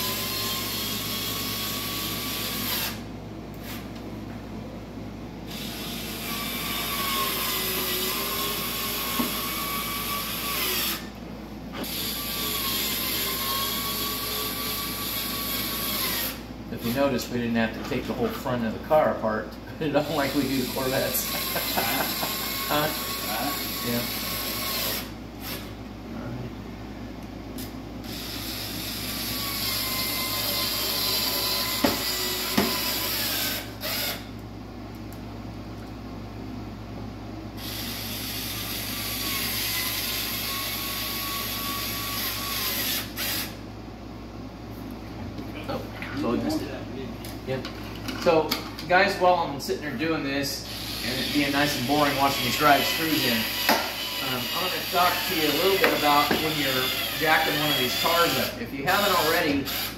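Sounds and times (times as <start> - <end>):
cordless screw gun motor: 0.0 - 3.0, 11.8 - 16.4, 20.2 - 25.7, 28.0 - 34.3, 37.6 - 43.6, 50.7 - 59.9.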